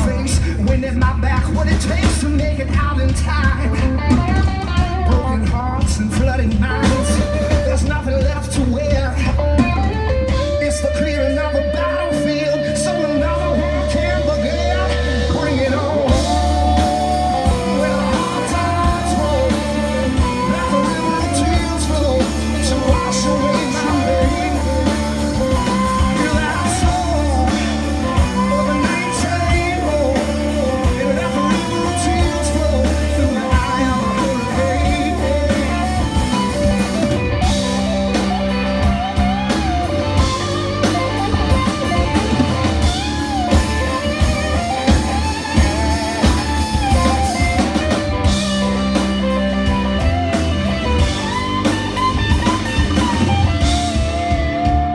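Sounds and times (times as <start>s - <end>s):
live rock band playing: 0.0s - 54.9s
wavering lead guitar: 0.0s - 54.9s.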